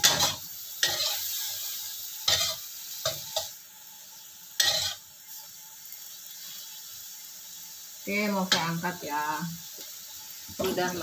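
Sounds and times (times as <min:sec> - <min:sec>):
spatula scraping and clattering: 0:00.0 - 0:01.2, 0:04.6 - 0:05.0
food sizzling in wok: 0:00.0 - 0:11.0.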